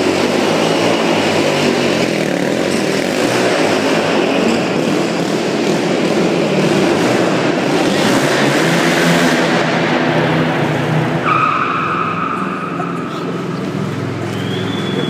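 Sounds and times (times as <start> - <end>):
quad bike engine revving: 0.0 - 11.2.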